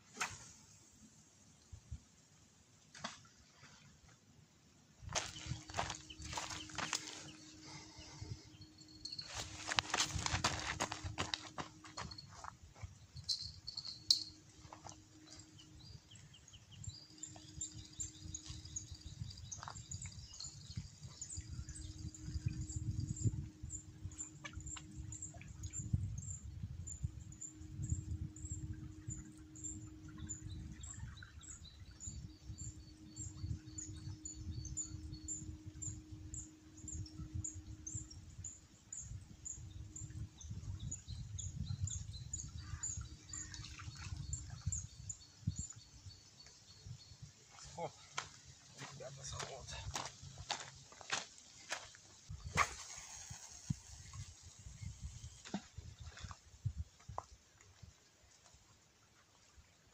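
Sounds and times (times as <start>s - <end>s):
faint hum: 5.1s - 43.5s.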